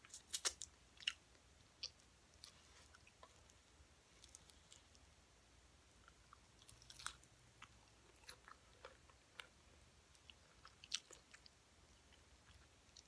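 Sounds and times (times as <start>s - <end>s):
crunchy chewing: 6.0s - 9.6s, 10.2s - 13.0s.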